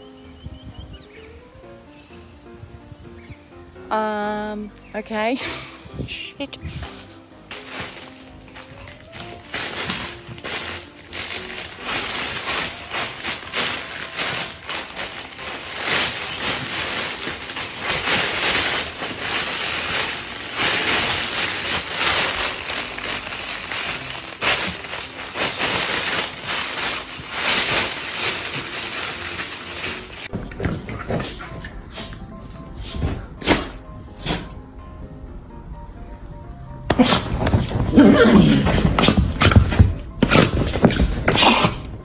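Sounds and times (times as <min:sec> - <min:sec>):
fabric tunnel rustling and crinkling: 0:06.7 - 0:30.4.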